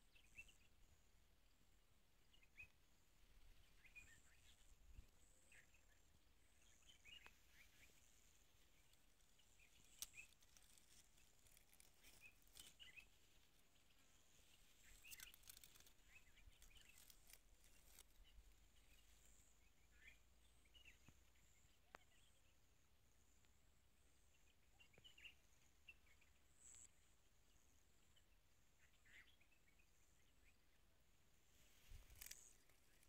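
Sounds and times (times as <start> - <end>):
faint high-pitched hiss: 0.0 - 33.0
short bird chirps: 3.6 - 13.1.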